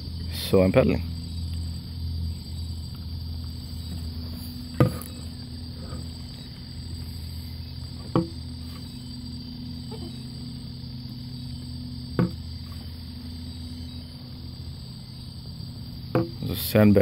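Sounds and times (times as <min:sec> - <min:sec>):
steady low hum: 0:00.0 - 0:17.0
paddle knocking plastic hull: 0:08.0 - 0:08.4, 0:12.2 - 0:12.4, 0:16.1 - 0:16.4.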